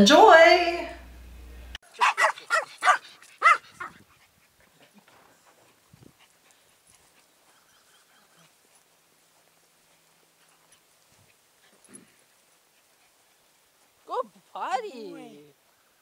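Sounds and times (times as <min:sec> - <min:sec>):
small dog barking: 0:01.9 - 0:04.0.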